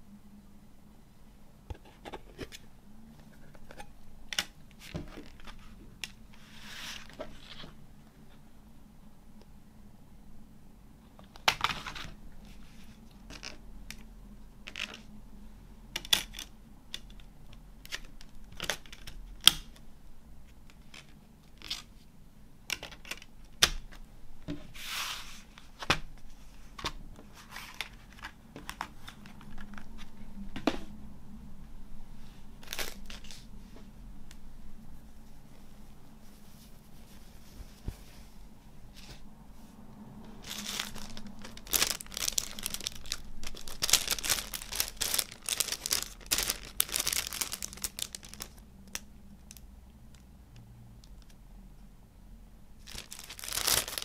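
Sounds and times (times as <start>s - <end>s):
card and packaging rustling: 24.7s - 30.2s, 32.6s - 33.5s, 40.4s - 49.0s, 52.8s - 54.0s.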